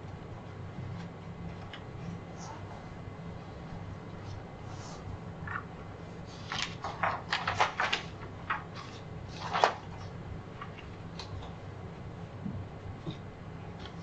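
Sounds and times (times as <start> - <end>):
low room hum: 0.0 - 14.0
papers rustling and knocks: 6.4 - 11.6.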